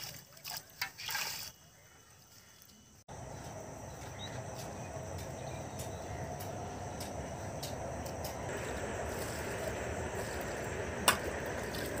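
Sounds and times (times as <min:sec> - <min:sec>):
water splashing: 0:00.0 - 0:01.6
outdoor hiss: 0:03.2 - 0:12.0.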